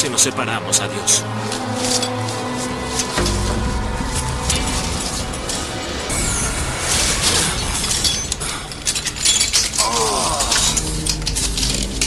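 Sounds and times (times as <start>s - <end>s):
clicking and rattling: 6.9s - 12.0s.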